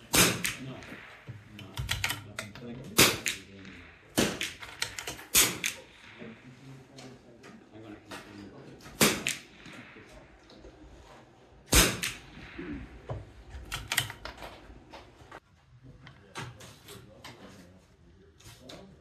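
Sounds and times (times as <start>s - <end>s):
rifle gunshots: 0.0s - 6.9s, 8.8s - 10.8s, 11.5s - 14.8s.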